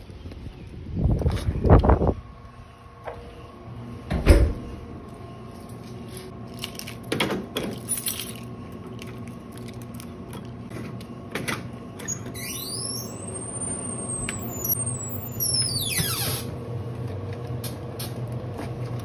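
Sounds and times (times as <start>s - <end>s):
keys jangling: 7.7s - 8.5s
high squeak rising in pitch: 12.4s - 16.5s.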